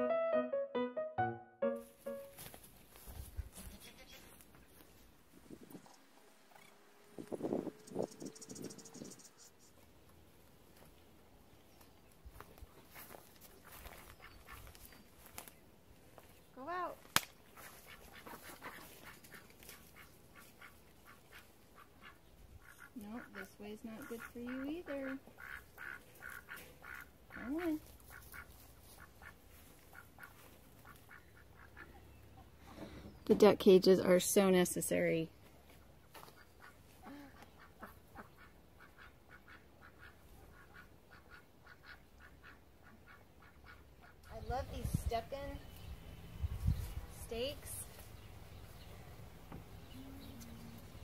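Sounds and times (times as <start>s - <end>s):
ducks quacking softly: 13.6s - 15.0s, 17.5s - 32.8s, 36.2s - 44.4s.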